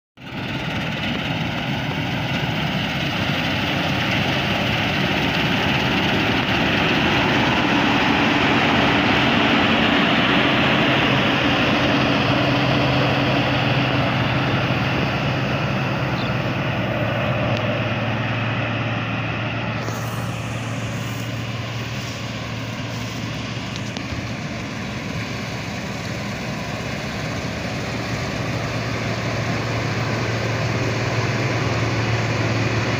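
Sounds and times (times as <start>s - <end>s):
combine harvester engine running: 0.2s - 32.9s.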